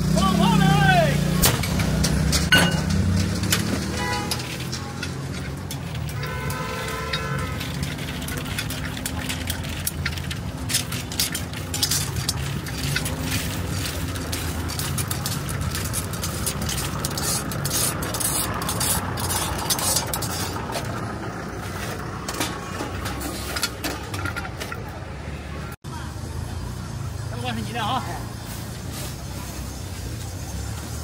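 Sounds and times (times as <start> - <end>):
metal rod clinking and scraping: 1.6 - 25.0.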